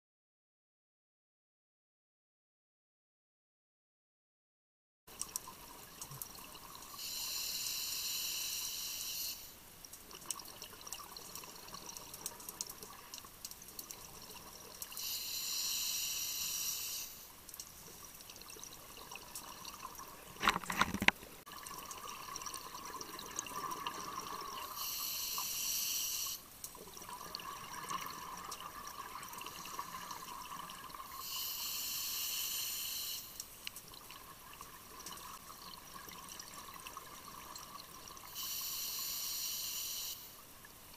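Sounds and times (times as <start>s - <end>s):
regulator hiss: 7.0s - 9.6s, 15.0s - 17.3s, 24.7s - 26.4s, 31.2s - 33.4s, 38.3s - 40.4s.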